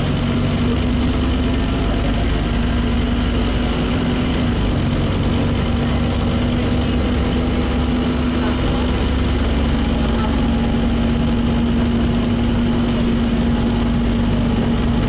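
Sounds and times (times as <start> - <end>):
bus diesel engine humming: 0.0 - 15.0.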